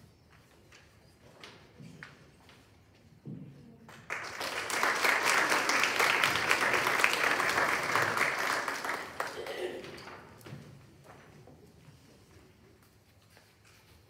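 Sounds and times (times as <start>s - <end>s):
audience applauding: 4.1s - 10.2s.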